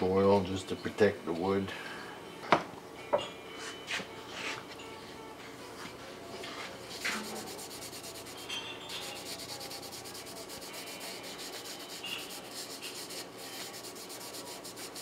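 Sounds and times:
cloth rag wiping wood: 6.9s - 8.4s, 9.1s - 15.0s.

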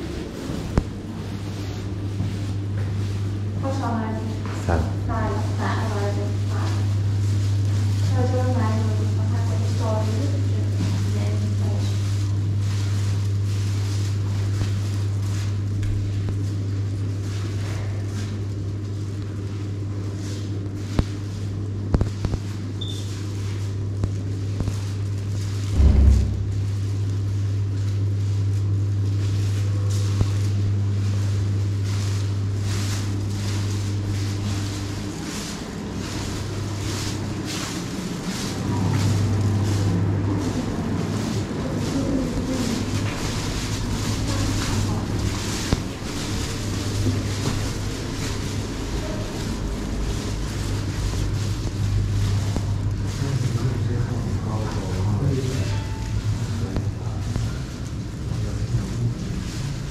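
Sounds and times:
footsteps: 0.0s - 59.9s
steady low hum: 0.0s - 59.9s
low thump: 25.7s - 26.6s.

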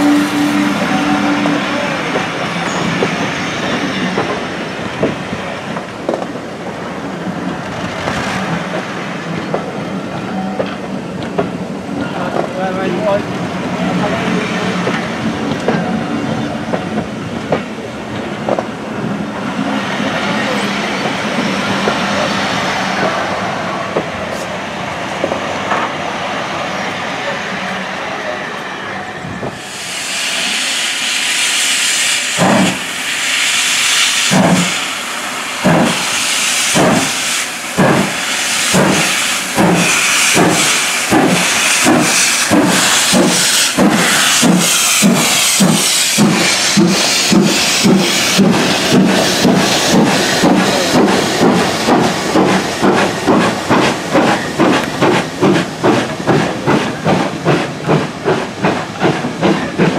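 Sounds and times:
steam hissing from locomotive: 29.5s - 59.9s
steam locomotive exhaust chuffs: 29.5s - 59.9s.

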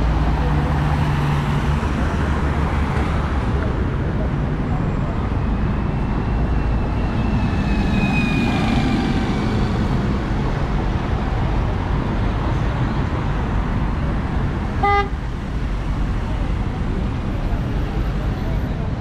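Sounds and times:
city street traffic: 0.0s - 19.0s
car horn toot: 14.8s - 15.2s.

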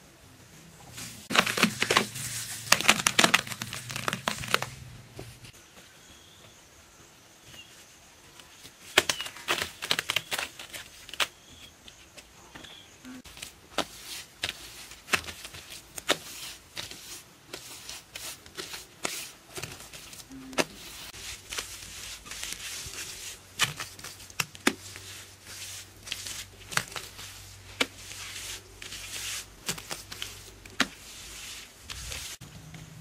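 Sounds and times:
wet smearing and scraping: 0.9s - 5.5s, 13.4s - 32.4s.

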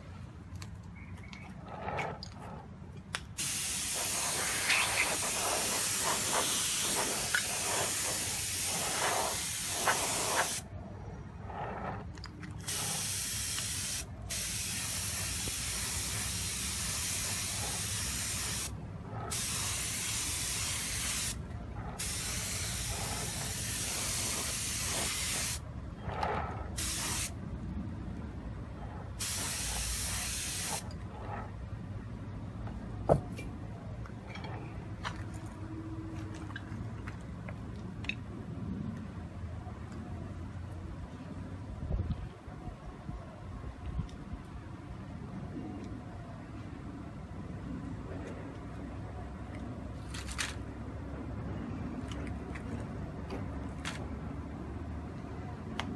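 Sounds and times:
spray gun hissing: 3.4s - 10.6s, 12.7s - 18.7s, 19.3s - 21.4s, 22.0s - 25.6s, 26.8s - 27.3s, 29.2s - 30.8s.

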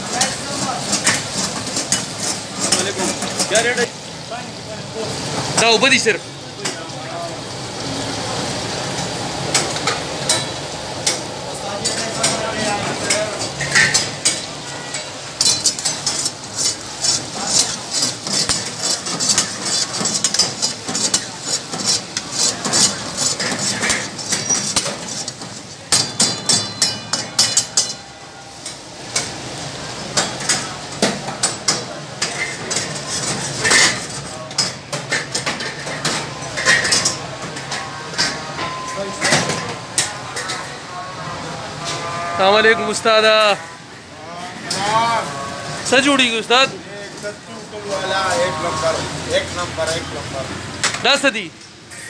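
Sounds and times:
meat sizzling: 0.0s - 34.8s
metal ladle clanking on wok: 9.5s - 29.3s.

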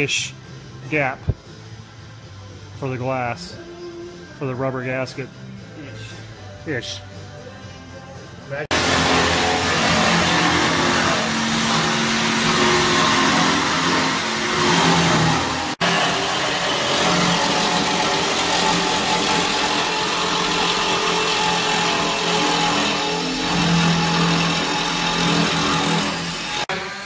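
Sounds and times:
loud machine noise: 8.7s - 27.0s.

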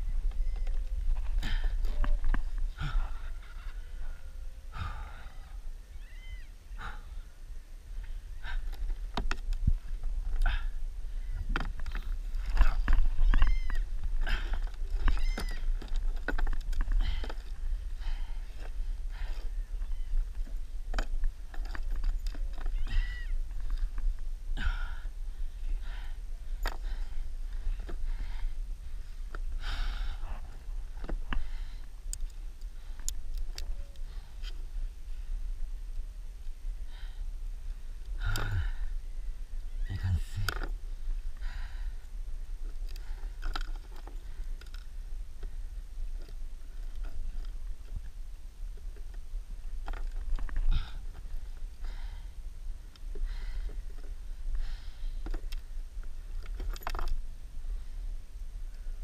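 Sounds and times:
wind rumbling on microphone: 0.0s - 59.0s
short high cries: 13.2s - 13.8s, 15.1s - 15.6s.

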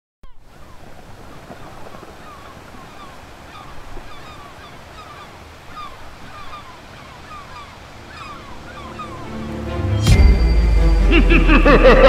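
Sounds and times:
high falling bird cries: 0.2s - 10.0s
surf washing: 0.4s - 10.0s.

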